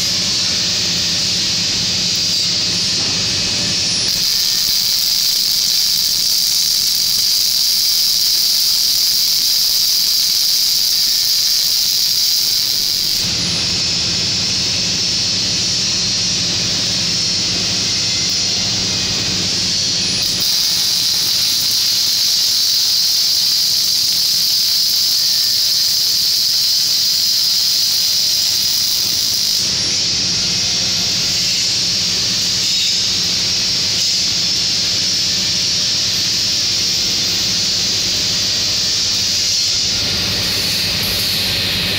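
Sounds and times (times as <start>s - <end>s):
arc welding hiss: 0.0s - 41.9s.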